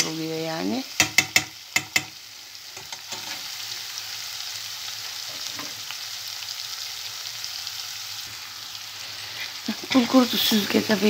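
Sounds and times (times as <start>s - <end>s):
food sizzling in oil: 0.0s - 11.0s
metal spoon tapping: 1.0s - 2.2s.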